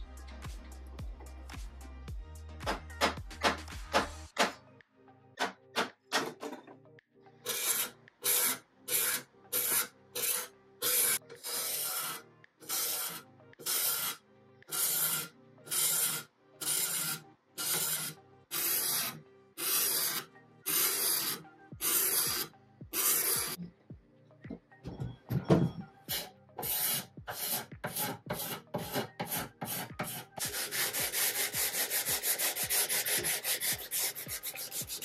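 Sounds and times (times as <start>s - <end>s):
hand sanding wood: 26.1s - 35.0s.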